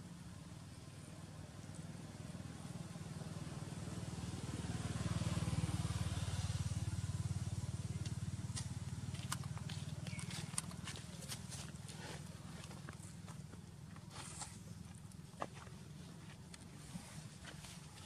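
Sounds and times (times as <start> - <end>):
motor vehicle passing: 2.3 - 13.3.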